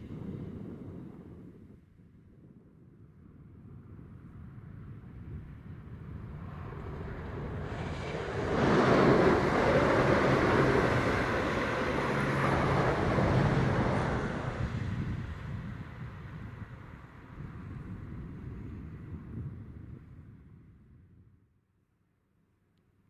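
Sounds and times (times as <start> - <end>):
diesel train passing at speed: 5.8 - 17.9.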